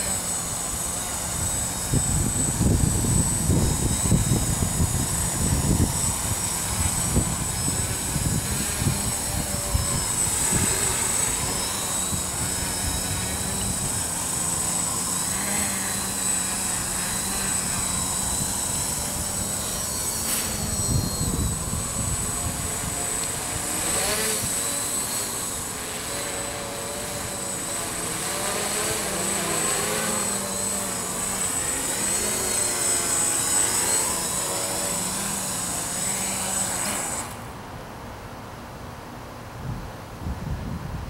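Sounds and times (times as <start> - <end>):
quadcopter motors humming: 0.0 - 39.0
wind buffeting microphone: 1.4 - 14.2, 16.6 - 24.6, 39.6 - 41.0.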